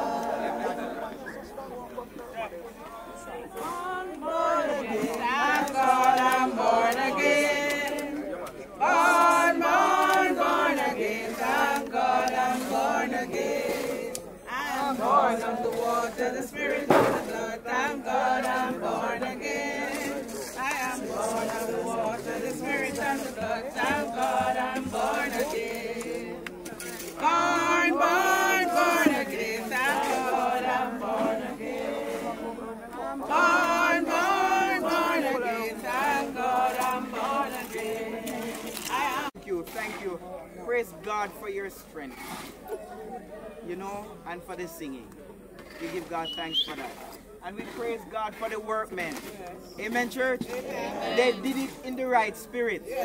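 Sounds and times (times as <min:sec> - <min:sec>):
crowd singing unaccompanied: 0:00.0 - 0:53.0.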